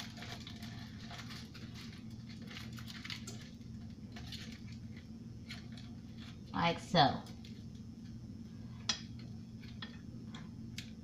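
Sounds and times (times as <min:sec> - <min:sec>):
aluminium foil crinkling: 0:00.0 - 0:08.1.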